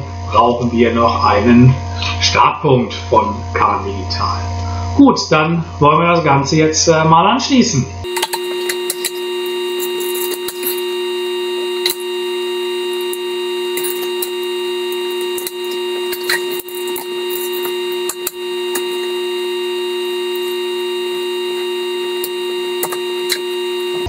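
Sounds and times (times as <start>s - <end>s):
steady electrical hum: 8.0s - 24.0s
track sections clicking and knocking: 8.1s - 19.2s, 21.5s - 24.0s.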